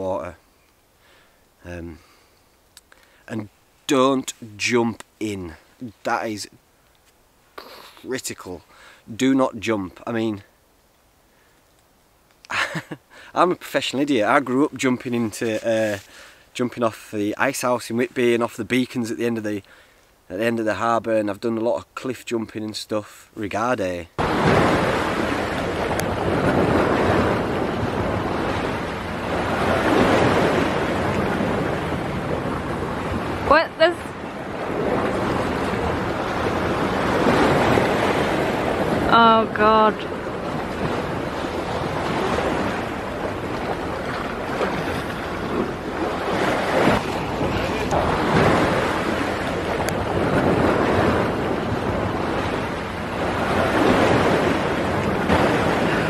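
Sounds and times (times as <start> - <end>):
surf washing against rocks: 24.2 - 56.0
wind rumbling on microphone: 24.2 - 56.0.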